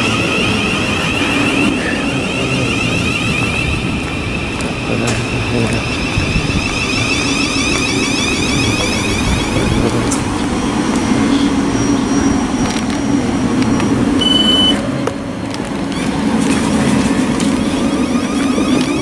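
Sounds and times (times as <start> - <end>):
train equipment humming: 0.0 - 19.0
short high beep: 13.8 - 14.8.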